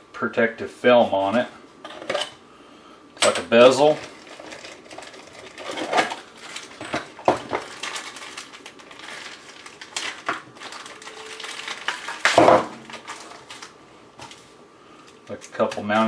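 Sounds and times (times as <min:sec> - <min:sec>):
plastic bag crinkling: 0:03.6 - 0:16.0.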